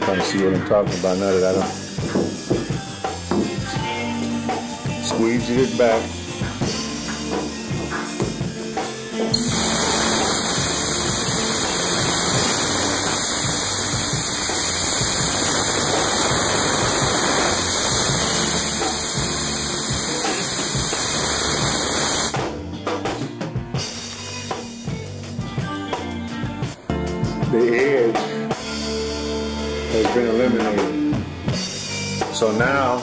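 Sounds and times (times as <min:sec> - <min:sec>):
background music with drum beat: 0:00.0 - 0:33.0
air blow gun hissing: 0:09.3 - 0:22.4.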